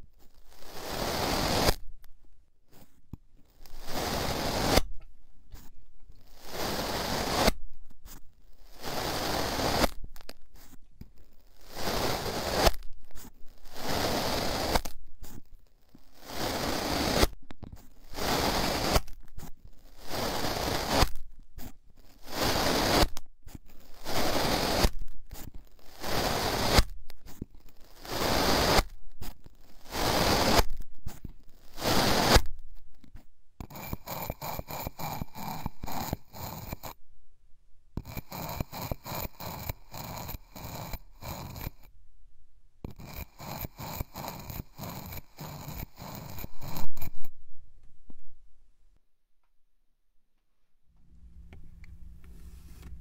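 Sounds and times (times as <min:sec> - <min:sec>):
metal tube scraping in sand: 0:00.0 - 0:01.8, 0:03.6 - 0:04.9, 0:05.6 - 0:10.8, 0:11.5 - 0:32.6, 0:38.0 - 0:41.9, 0:42.9 - 0:47.3.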